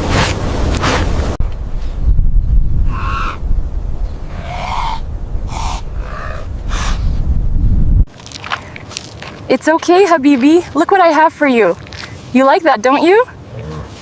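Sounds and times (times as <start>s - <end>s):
steady low rumble: 0.0s - 10.8s
hooting animal calls: 2.8s - 3.4s, 4.2s - 7.0s.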